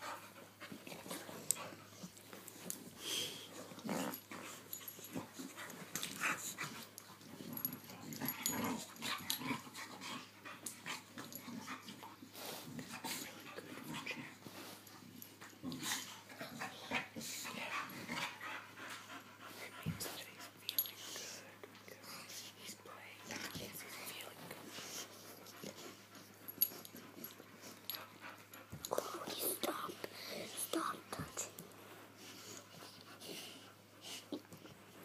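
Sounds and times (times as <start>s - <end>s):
dogs breathing noisily: 0.0s - 35.0s.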